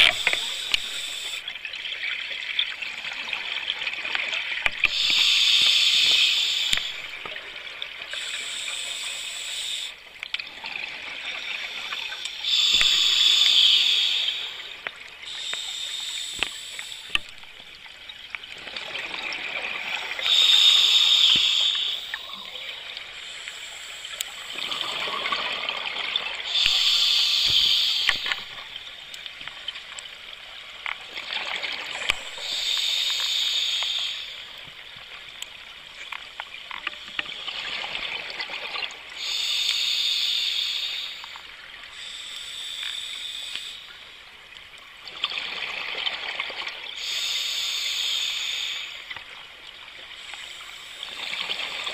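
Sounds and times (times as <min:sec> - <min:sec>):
regulator hiss: 0:00.0 - 0:01.5, 0:04.8 - 0:07.4, 0:08.1 - 0:10.0, 0:11.4 - 0:17.3, 0:20.0 - 0:25.2, 0:26.5 - 0:28.7, 0:32.0 - 0:34.6, 0:39.1 - 0:44.0, 0:47.0 - 0:49.2, 0:50.2 - 0:51.9.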